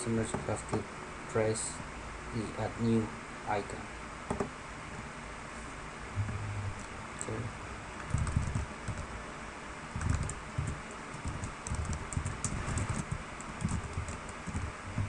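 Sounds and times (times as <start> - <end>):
steady background hiss: 0.0 - 15.0
dull low thuds: 6.2 - 6.8, 12.9 - 15.0.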